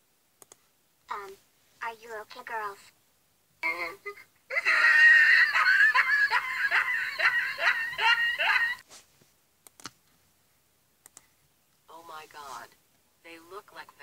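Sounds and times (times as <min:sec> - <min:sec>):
sharp clicks: 0:00.4 - 0:00.6, 0:09.6 - 0:10.0
high-pitched cartoon laughter: 0:03.7 - 0:08.8.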